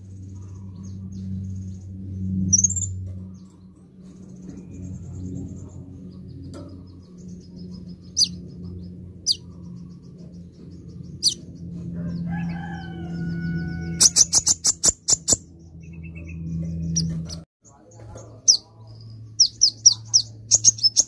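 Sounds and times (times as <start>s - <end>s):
sunbird twittering chips: 2.5s - 5.7s, 11.2s - 11.4s, 13.9s - 21.0s
rooster crowing: 11.2s - 14.5s.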